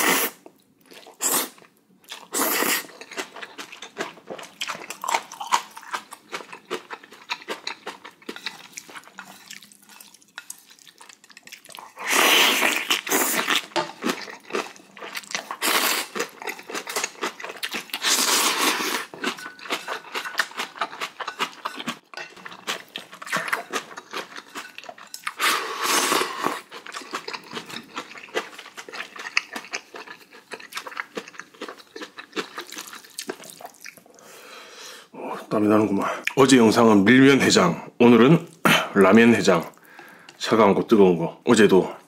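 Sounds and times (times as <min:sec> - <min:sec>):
man slurping noodles: 0:00.0 - 0:00.4, 0:12.0 - 0:13.5
chewing crunchy food: 0:00.4 - 0:34.2.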